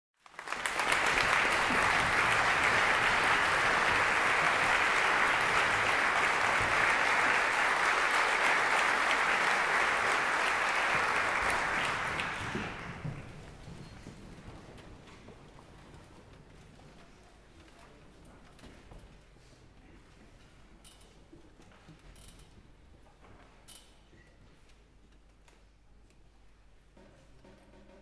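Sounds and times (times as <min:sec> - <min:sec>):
audience applauding: 0:00.2 - 0:13.6.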